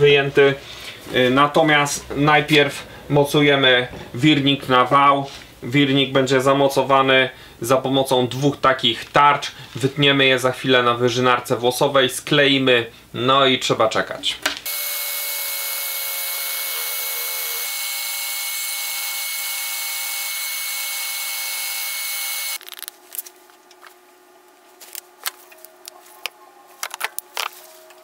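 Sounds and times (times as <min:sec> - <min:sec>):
scroll saw whining: 0:14.7 - 0:22.6.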